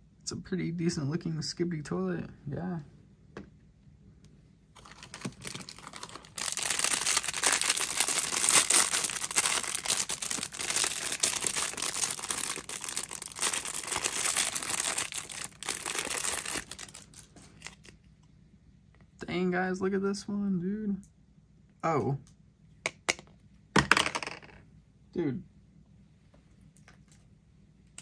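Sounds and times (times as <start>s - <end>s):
plastic wrap crinkling: 4.8s - 18.0s.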